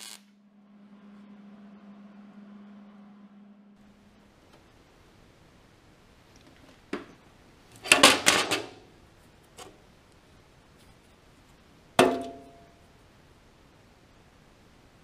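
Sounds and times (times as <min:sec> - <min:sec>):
metal knocking and clatter: 0:07.8 - 0:08.8.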